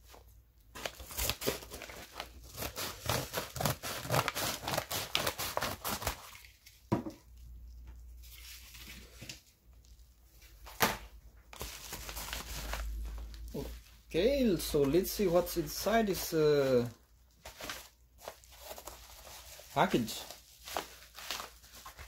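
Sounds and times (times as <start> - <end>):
paper crinkling: 0.1 - 10.8, 11.5 - 22.0
scissors cutting paper: 2.5 - 6.2.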